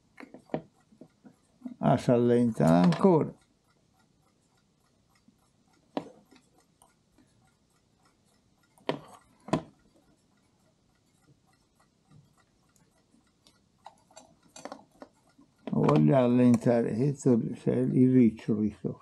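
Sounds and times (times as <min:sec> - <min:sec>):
clock ticking: 0:00.0 - 0:19.0
metallic clicks and knocks: 0:02.5 - 0:03.4, 0:13.8 - 0:16.8.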